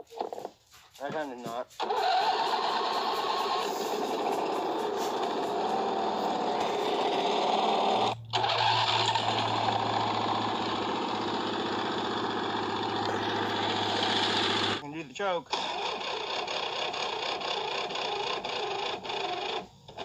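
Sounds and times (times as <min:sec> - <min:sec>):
lawn tractor engine running: 0:00.0 - 0:20.0.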